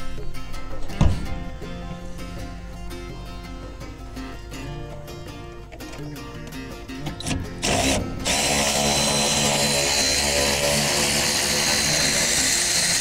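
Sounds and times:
cordless drill whining: 0:07.2 - 0:13.0.

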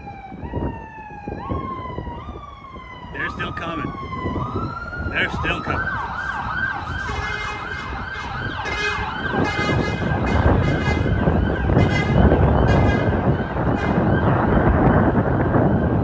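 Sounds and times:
emergency siren yelping: 0:00.0 - 0:16.0
steady rumble: 0:04.1 - 0:16.0.

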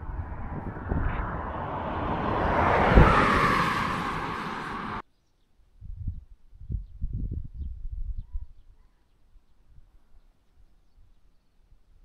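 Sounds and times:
vehicle passing on highway: 0:00.0 - 0:05.0.

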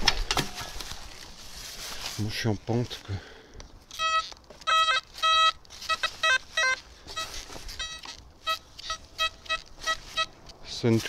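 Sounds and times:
metal detector beeps: 0:03.9 - 0:10.4.

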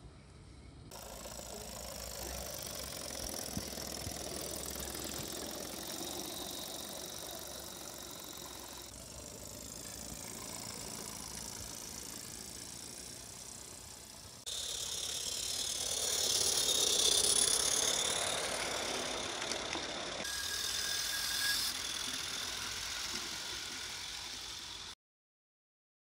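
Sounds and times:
model train running on track: 0:00.9 - 0:25.0
small clicks: 0:17.4 - 0:20.3.

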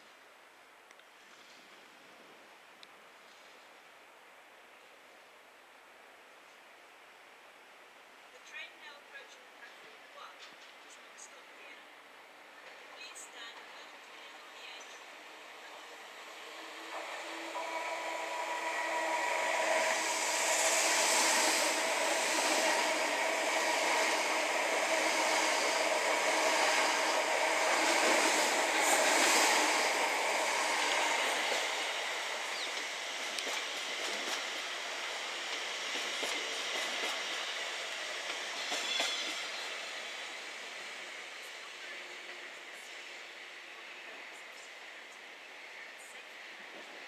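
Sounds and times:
trains passing at speed: 0:10.6 - 0:47.0.

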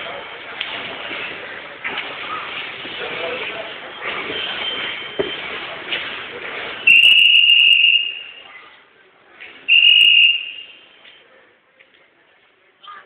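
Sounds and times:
whistle blasts: 0:06.8 - 0:08.5, 0:09.7 - 0:11.0.

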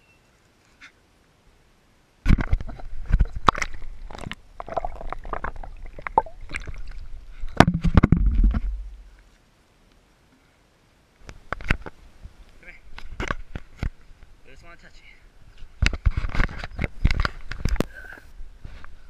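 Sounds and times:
water splashing and gurgling: 0:02.3 - 0:09.2
low rumble: 0:07.6 - 0:09.2.

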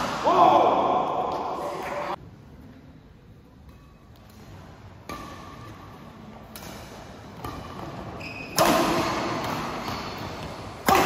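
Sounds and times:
rackets hitting shuttlecock: 0:03.6 - 0:11.0
shoes squeaking on court floor: 0:06.6 - 0:10.7.

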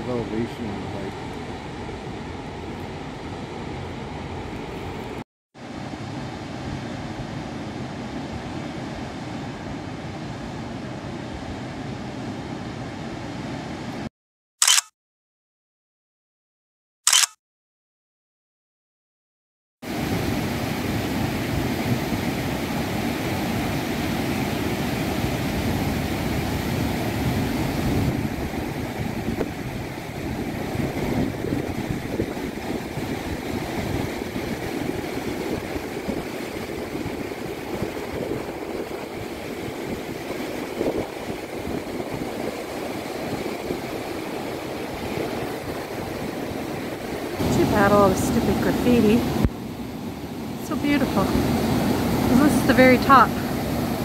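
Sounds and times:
waterfall rushing: 0:45.6 - 0:54.0.

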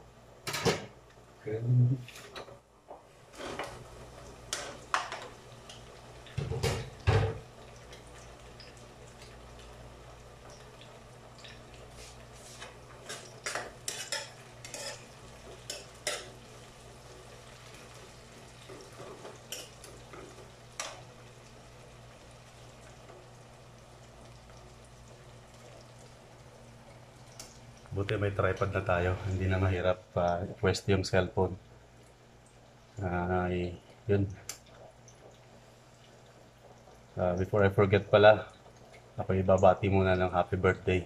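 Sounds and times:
metal ladle scraping frying pan: 0:12.5 - 0:15.1
steady low hum: 0:19.2 - 0:36.3.

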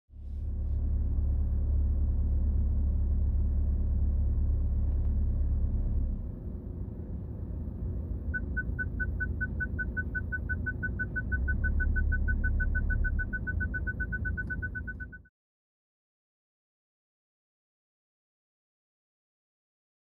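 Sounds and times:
low rumble: 0:00.1 - 0:08.9
parking sensor beeping: 0:08.3 - 0:15.3.

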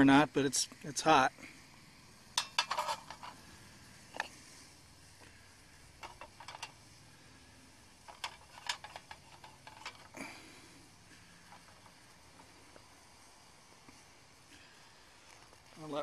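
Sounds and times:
metal pan clinking: 0:02.4 - 0:03.4.

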